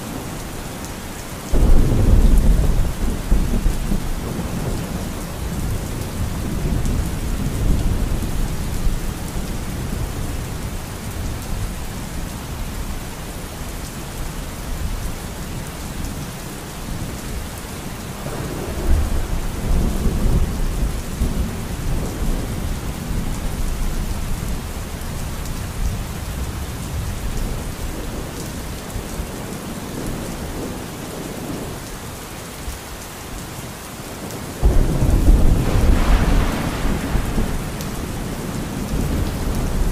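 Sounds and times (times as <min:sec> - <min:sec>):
steady rain: 0:00.0 - 0:39.9
thunder rumbling: 0:01.5 - 0:10.2, 0:34.6 - 0:39.9.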